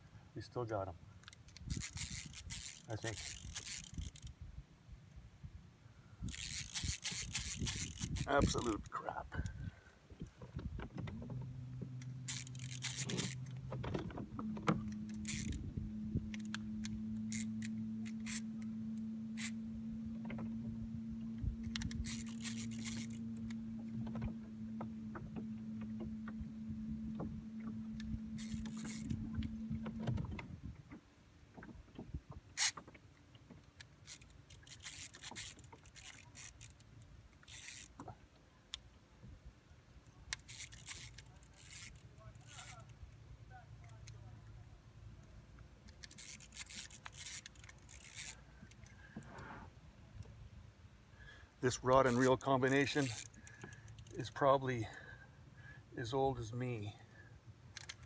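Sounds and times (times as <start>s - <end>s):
steady low hum: 0.9s - 30.9s
fishing reel scraping and clicking: 1.2s - 4.4s, 6.2s - 9.7s, 10.8s - 30.5s, 32.5s - 32.9s, 33.6s - 38.2s, 40.0s - 43.2s, 43.8s - 44.3s, 45.2s - 49.5s, 51.3s - 55.2s, 56.0s - 58.0s.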